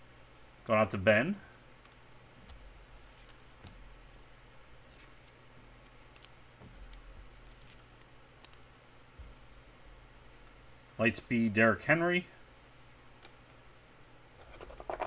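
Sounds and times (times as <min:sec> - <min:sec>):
low steady hum: 0:00.0 - 0:15.0
trading cards rustling and clicking: 0:01.6 - 0:09.5.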